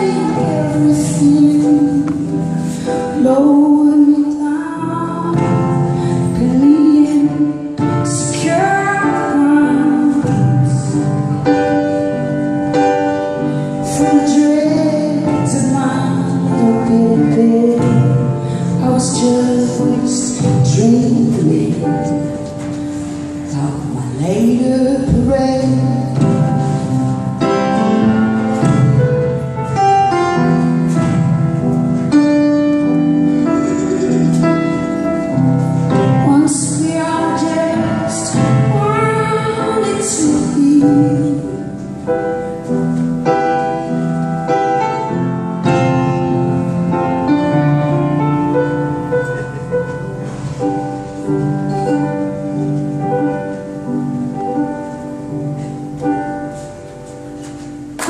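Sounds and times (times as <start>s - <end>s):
woman singing a slow song: 0.0s - 11.4s, 13.8s - 26.8s, 35.9s - 41.9s
grand piano accompaniment: 0.0s - 58.0s.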